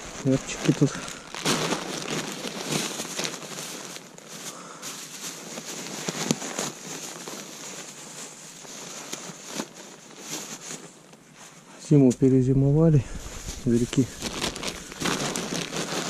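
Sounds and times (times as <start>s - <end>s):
rustling and crunching: 0.0s - 16.0s.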